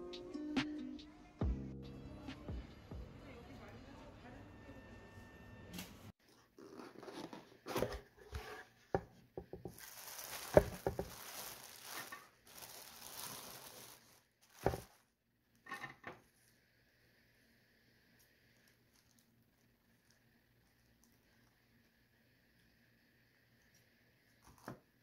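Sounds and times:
cling film crinkling: 9.7 - 15.0.

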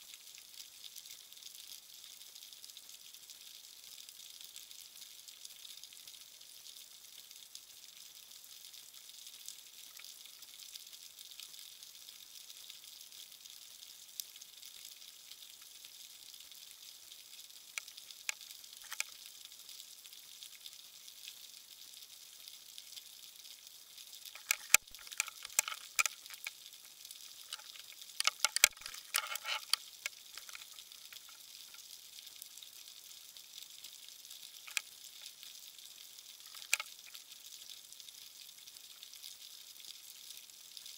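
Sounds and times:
sharp clicks and knocks: 18.8 - 19.1, 24.4 - 26.5, 27.5 - 31.4, 36.5 - 37.2
underwater crackling hiss: 24.3 - 31.9, 36.4 - 37.3.

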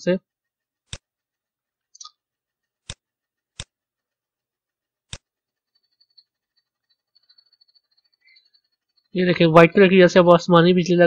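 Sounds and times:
computer mouse clicks: 0.8 - 1.2, 1.8 - 4.1, 5.0 - 8.6.

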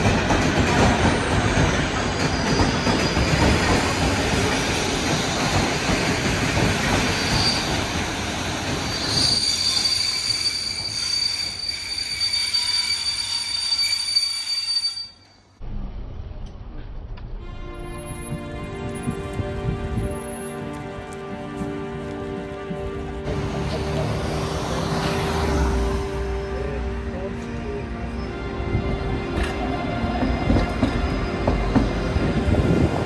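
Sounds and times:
rail vehicle rumble and clatter: 0.0 - 33.0
high-pitched wheel squeal: 7.1 - 7.8, 8.8 - 15.4.

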